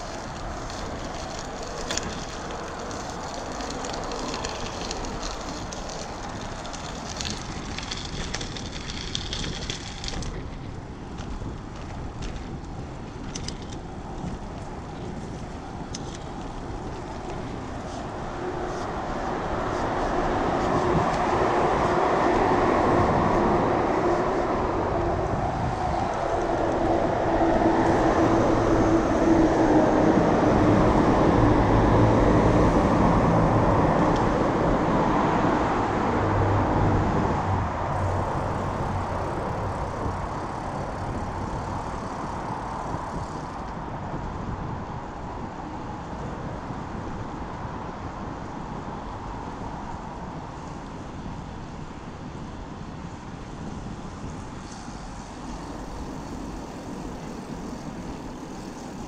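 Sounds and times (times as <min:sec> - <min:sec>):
train rumbling past: 0:18.2 - 0:43.6.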